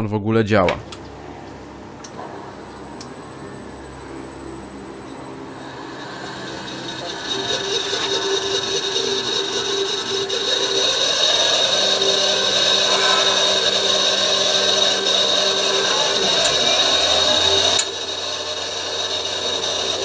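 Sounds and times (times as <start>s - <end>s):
high-pitched gliding tone: 2.4s - 18.2s
electric motor whine: 2.4s - 20.0s.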